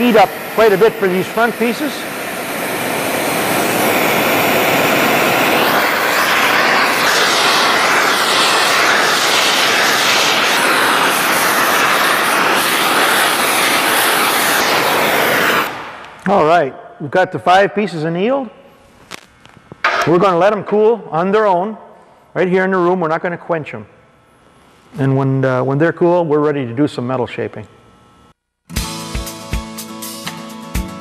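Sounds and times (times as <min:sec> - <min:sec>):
torch burning with a hiss: 0:00.0 - 0:16.3.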